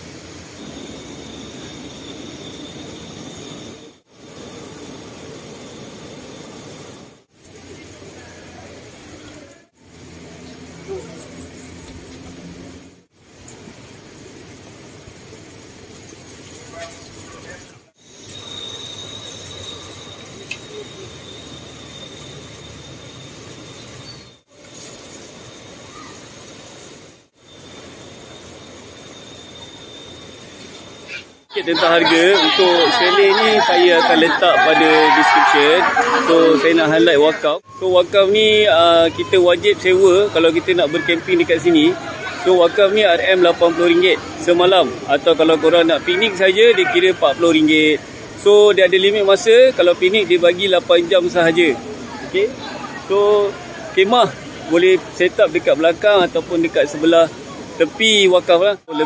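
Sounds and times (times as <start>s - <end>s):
high-pitched insect drone: 0.0s - 6.6s, 18.0s - 34.0s
faint high steady tone: 0.0s - 7.0s, 18.0s - 26.8s, 27.4s - 59.0s
river rushing: 31.5s - 59.0s.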